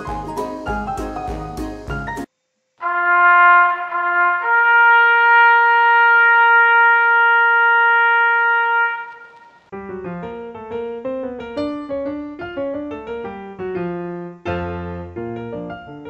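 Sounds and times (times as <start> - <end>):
piano-like music: 0.0 - 2.3, 9.7 - 16.0.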